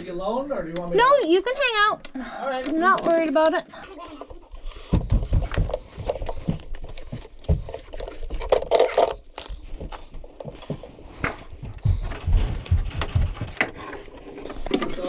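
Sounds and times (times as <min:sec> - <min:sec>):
rustling: 0:04.0 - 0:15.0.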